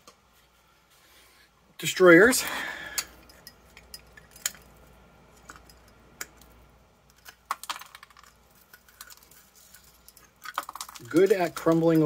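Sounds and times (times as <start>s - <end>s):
sharp clicks and cracks: 5.4s - 12.0s.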